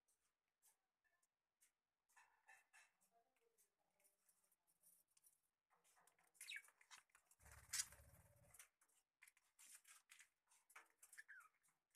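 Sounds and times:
budgerigar chirps and chatter: 0:06.4 - 0:06.8.

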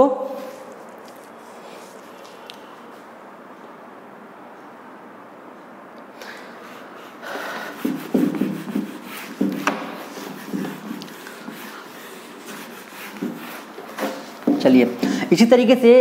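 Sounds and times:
duster rubbing on whiteboard: 0:06.7 - 0:15.2.

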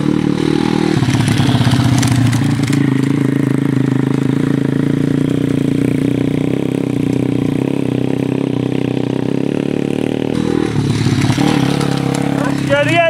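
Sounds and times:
motorbike engine running: 0:00.0 - 0:13.0.

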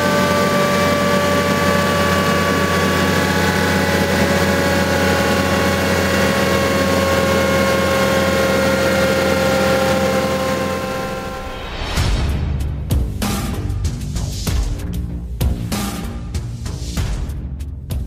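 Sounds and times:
motorcycle engine running: 0:00.0 - 0:11.9.

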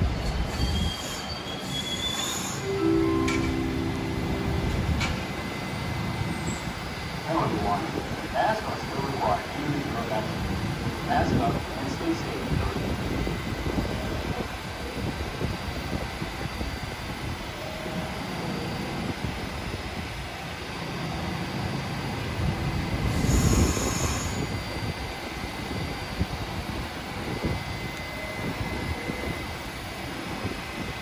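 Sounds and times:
subway train rumbling on rails: 0:00.0 - 0:31.0
high wheel squeal: 0:00.4 - 0:02.7.

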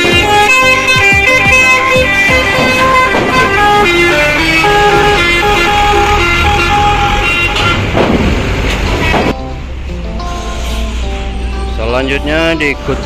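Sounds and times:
loud music: 0:00.0 - 0:07.8
bus engine running: 0:00.0 - 0:13.0.

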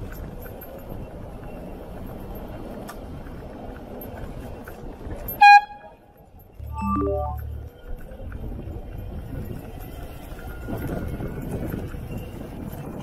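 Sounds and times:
e-scooter rumble on road: 0:00.0 - 0:06.6, 0:07.4 - 0:13.0
bicycle air horn blast: 0:05.4 - 0:06.0.

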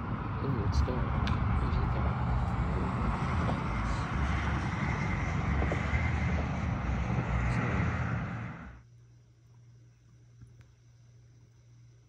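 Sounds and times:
loud outdoor rumble and hiss: 0:00.0 - 0:08.9.

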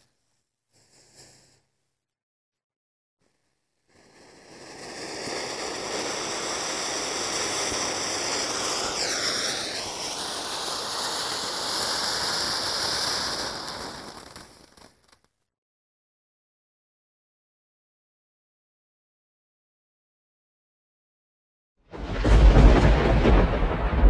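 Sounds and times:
firework fountain hissing and crackling: 0:00.7 - 0:01.7, 0:03.2 - 0:15.3.

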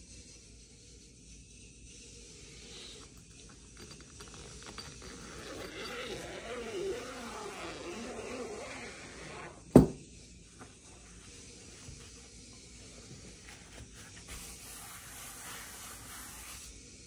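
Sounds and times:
cloth rustling: 0:03.8 - 0:09.6
zipper running: 0:03.8 - 0:09.8.

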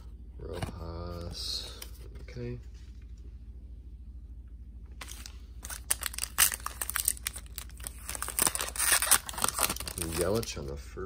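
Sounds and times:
foil wrapper tearing and crinkling: 0:05.0 - 0:10.6.

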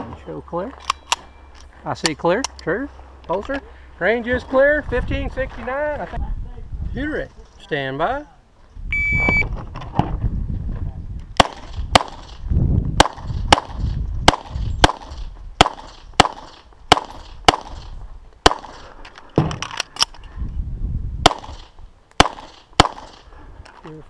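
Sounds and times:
pistol shots: 0:11.4 - 0:12.4, 0:13.0 - 0:18.8, 0:21.2 - 0:23.3.

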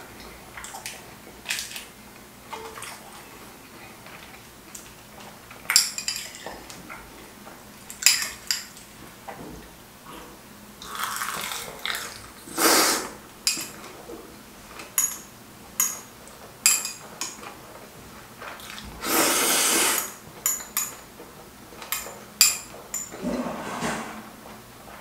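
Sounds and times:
noodles slurping: 0:10.8 - 0:13.2, 0:18.6 - 0:20.2.

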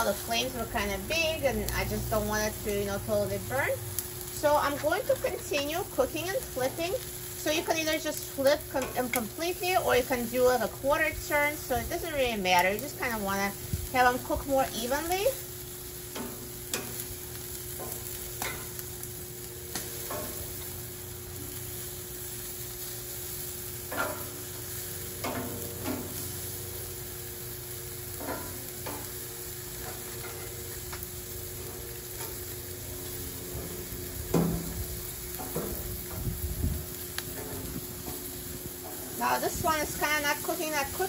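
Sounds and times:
chicken sizzling on grill: 0:00.0 - 0:41.0
metal tongs clicking on grate: 0:08.2 - 0:09.3, 0:16.1 - 0:17.1, 0:17.8 - 0:18.8, 0:25.2 - 0:26.2.

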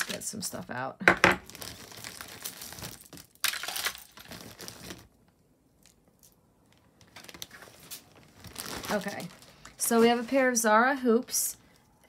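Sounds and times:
bag crinkling and rustling: 0:01.4 - 0:10.7.

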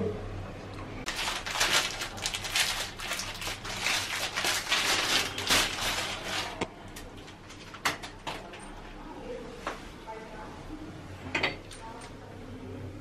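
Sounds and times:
plastic packaging crinkling: 0:01.1 - 0:08.3.

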